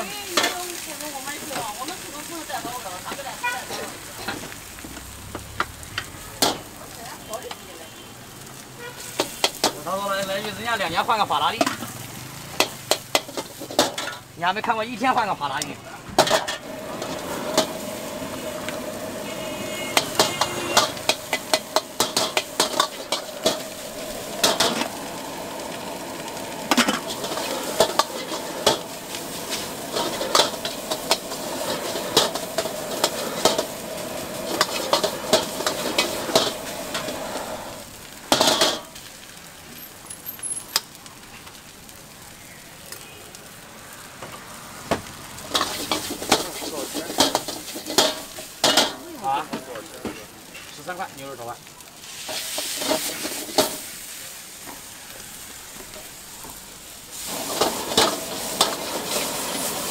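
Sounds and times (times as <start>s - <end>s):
fried rice sizzling: 0.0s - 59.9s
utensils scraping a wok: 0.2s - 4.6s, 8.9s - 10.0s, 11.6s - 15.4s, 16.2s - 38.9s, 45.4s - 50.8s, 52.0s - 54.2s, 55.8s - 59.9s.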